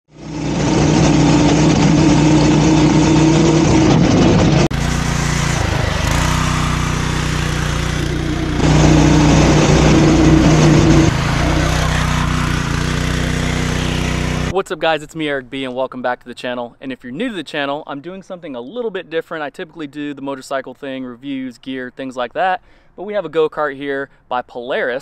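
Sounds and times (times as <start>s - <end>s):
distant engine: 0.1s - 14.5s
go-kart engine running: 0.1s - 14.5s.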